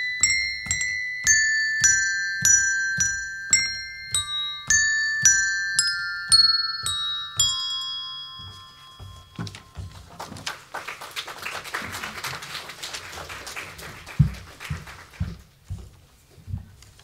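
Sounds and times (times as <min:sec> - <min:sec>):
handbells ringing: 0:00.0 - 0:10.3
soft thumps: 0:00.2 - 0:10.4.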